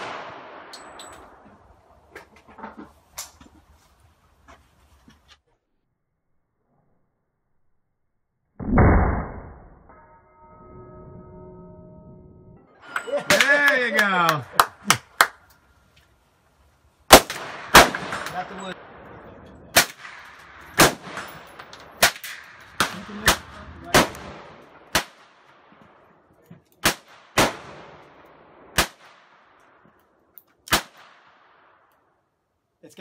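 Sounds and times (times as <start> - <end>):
gunshots with ringing echo: 0.0 - 1.4, 8.6 - 11.9, 17.1 - 25.7.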